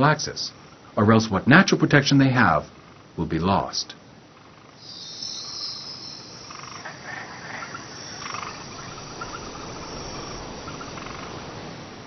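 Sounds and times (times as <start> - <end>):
insects: 0.0 - 12.0
frogs calling: 4.2 - 12.0
quick repeated clicking calls: 4.8 - 9.4.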